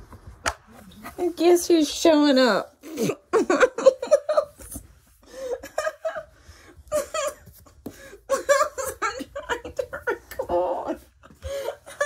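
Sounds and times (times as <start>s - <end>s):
woman laughing: 2.8s - 7.6s, 8.2s - 12.0s.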